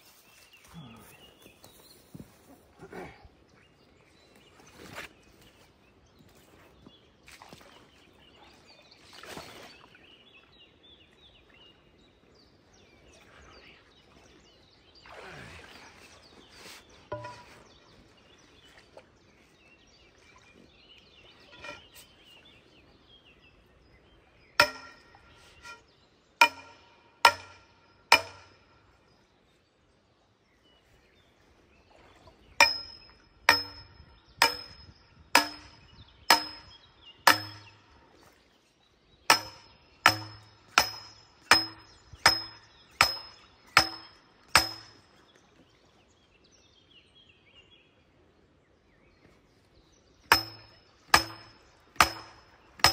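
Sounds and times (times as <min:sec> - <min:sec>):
sledgehammer clanging on steel tube: 0:17.1 - 0:17.6, 0:24.6 - 0:25.8, 0:26.4 - 0:28.6, 0:32.6 - 0:37.8, 0:39.3 - 0:45.0, 0:50.3 - 0:52.9.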